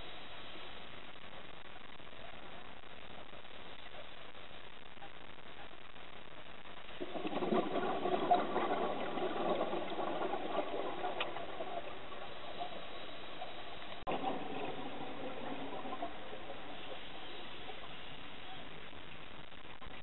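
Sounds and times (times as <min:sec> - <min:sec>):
steady hiss: 0:00.0 - 0:20.0
exhaled bubbles rattling: 0:06.6 - 0:20.0.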